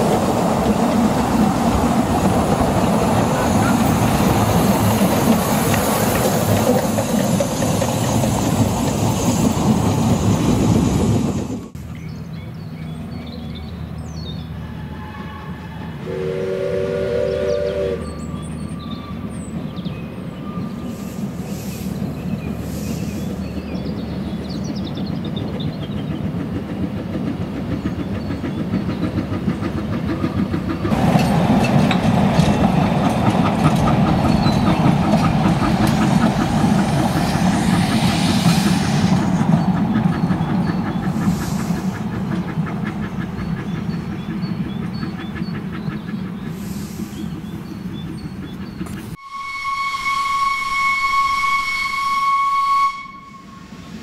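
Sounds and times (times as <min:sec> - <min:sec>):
steam locomotive clattering: 0:00.0 - 0:12.0, 0:15.4 - 0:54.0
steam whistle blast: 0:14.7 - 0:18.1, 0:49.2 - 0:53.8.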